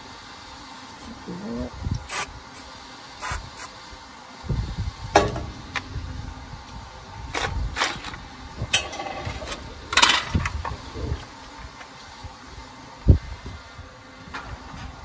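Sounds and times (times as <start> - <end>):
low steady rumble: 0.0 - 15.0
metal tools clattering on steel bench: 7.8 - 10.4.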